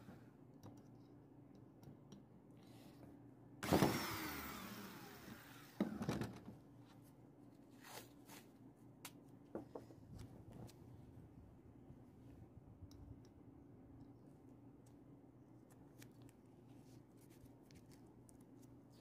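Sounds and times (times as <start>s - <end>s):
cordless drill whining: 3.6s - 6.1s.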